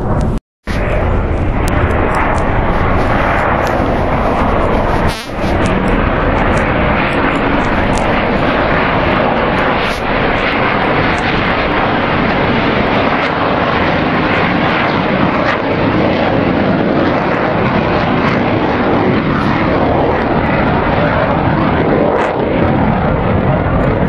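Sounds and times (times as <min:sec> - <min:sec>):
jet roar overhead: 0:00.0 - 0:24.0.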